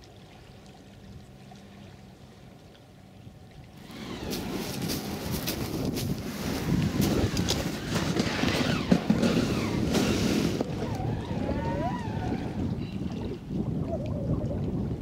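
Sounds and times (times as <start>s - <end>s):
wind buffeting microphone: 3.8s - 15.0s
wavering gliding tones: 10.6s - 14.5s.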